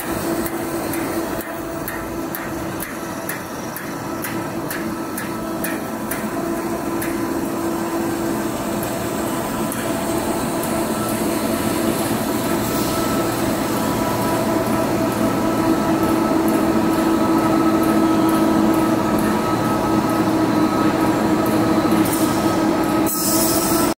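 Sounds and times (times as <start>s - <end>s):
constant machine whine: 0.0s - 23.9s
machine mechanical drone: 0.0s - 23.9s.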